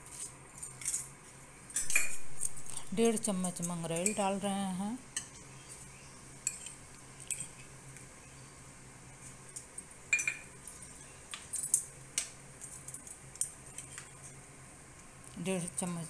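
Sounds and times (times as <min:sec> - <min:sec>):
faint low hum: 0:00.0 - 0:16.0
metal spoon clinking on metal pot: 0:01.8 - 0:04.3, 0:10.1 - 0:10.5.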